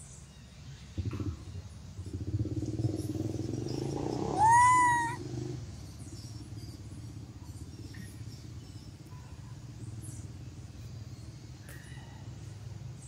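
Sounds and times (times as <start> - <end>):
engine rumbling: 0.8 - 13.0
faint high chirps: 2.9 - 5.2.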